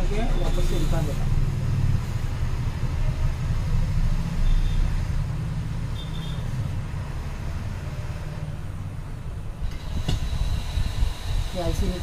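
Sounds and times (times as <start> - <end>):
hot air blower running: 9.6 - 12.0.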